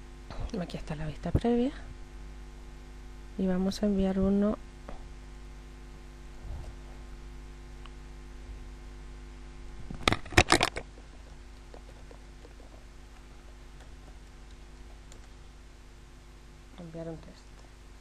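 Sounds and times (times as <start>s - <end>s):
low electrical hum: 0.0s - 18.0s
computer keyboard keystrokes: 13.8s - 15.3s.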